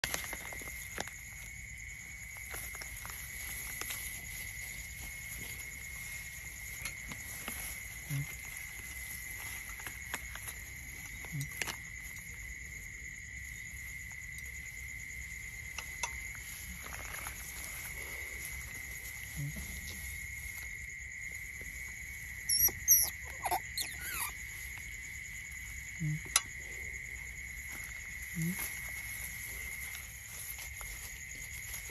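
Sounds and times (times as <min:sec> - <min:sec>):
otter pups squeaking: 0:22.4 - 0:24.4.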